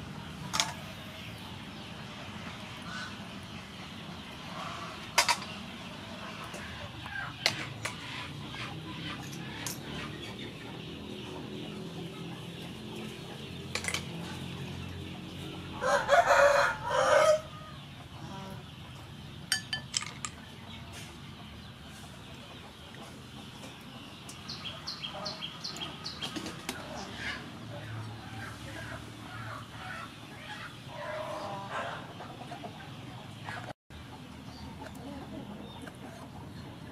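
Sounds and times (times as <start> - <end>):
rooster crowing: 15.8 - 17.8.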